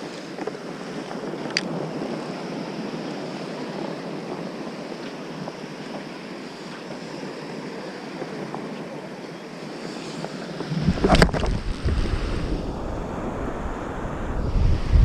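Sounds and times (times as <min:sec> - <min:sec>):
small waves on sandy beach: 0:00.0 - 0:15.0
wind: 0:00.0 - 0:15.0
wind buffeting microphone: 0:00.0 - 0:15.0
fishing rod whoosh: 0:10.6 - 0:14.8.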